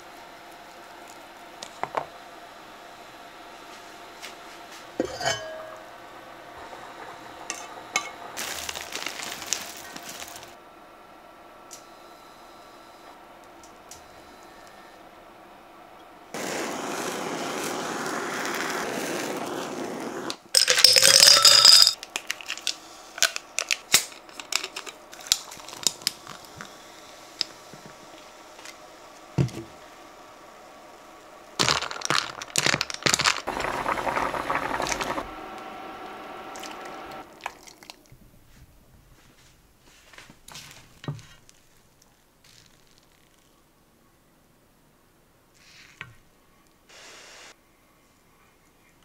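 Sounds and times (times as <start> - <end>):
crackling noise bursts: 6.4 - 10.6, 16.3 - 20.5, 31.6 - 37.4
kitchen torch hissing: 16.4 - 20.5, 46.9 - 47.6.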